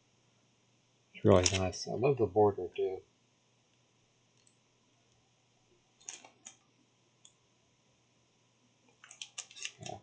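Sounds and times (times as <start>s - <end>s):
faint clicks: 3.7s - 5.2s.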